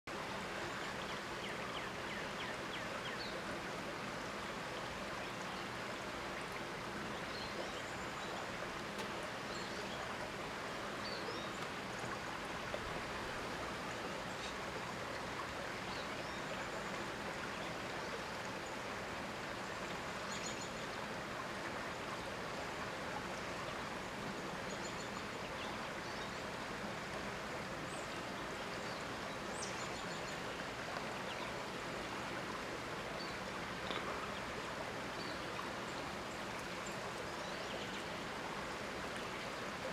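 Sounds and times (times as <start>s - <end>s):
flowing river water: 0.1s - 39.9s.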